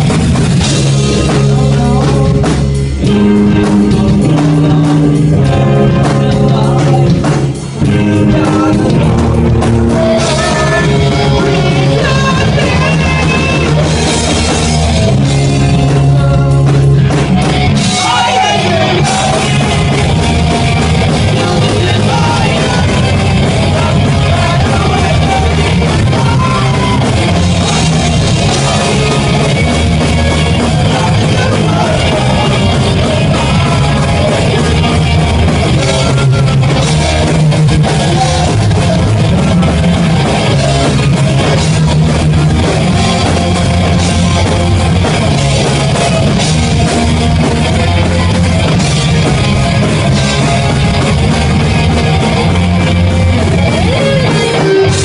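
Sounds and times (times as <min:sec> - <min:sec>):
person singing: 0:00.0 - 0:42.0
electric guitars: 0:00.0 - 0:55.0
rock band playing: 0:00.0 - 0:55.0.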